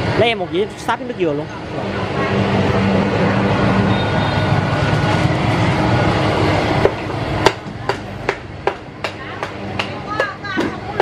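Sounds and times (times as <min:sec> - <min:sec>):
sharp knocks: 0:06.8 - 0:11.0.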